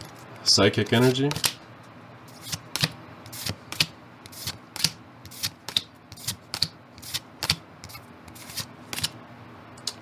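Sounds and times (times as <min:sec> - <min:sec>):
trading cards being flicked: 0:01.0 - 0:01.6, 0:07.4 - 0:07.6.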